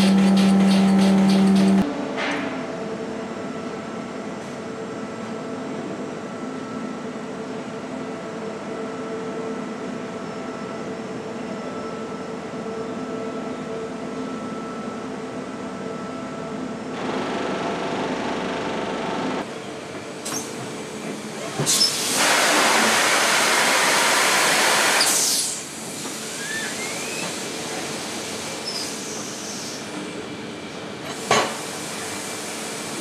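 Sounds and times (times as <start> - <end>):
compressed air hiss: 21.7 - 25.7.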